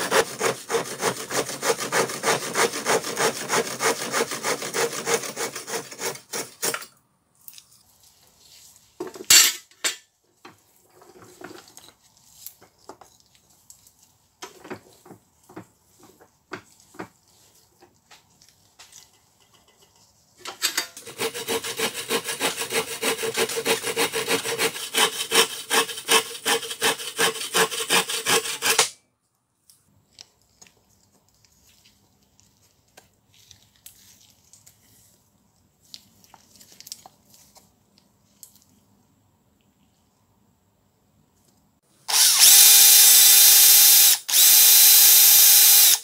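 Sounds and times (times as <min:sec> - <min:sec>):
hand saw cutting wood: 0:00.0 - 0:06.9, 0:20.8 - 0:29.0, 0:42.1 - 0:46.0.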